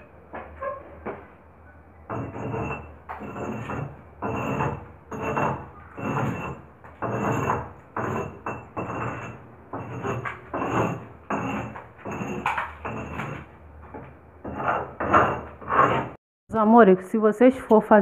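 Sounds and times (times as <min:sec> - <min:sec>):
chisel scraping plaster wall: 0:02.1 - 0:16.2.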